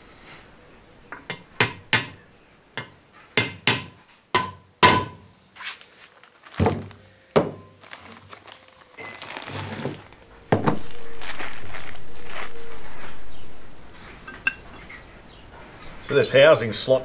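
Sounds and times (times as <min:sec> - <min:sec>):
hammer striking steel: 0:02.8 - 0:05.2.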